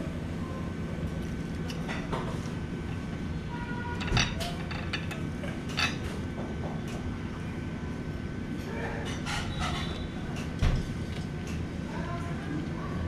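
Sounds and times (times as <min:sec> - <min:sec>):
cutlery scraping on plate: 0:09.1 - 0:10.0.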